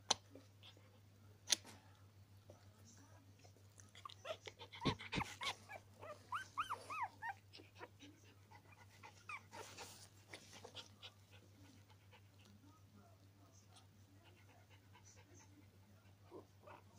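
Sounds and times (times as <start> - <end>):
puppies squeaking and whimpering: 4.0 - 8.0.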